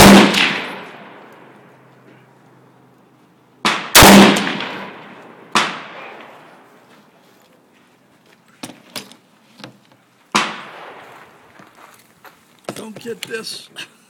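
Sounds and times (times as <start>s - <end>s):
rifle shots echoing: 0.0s - 1.5s, 3.6s - 6.5s, 10.3s - 11.4s.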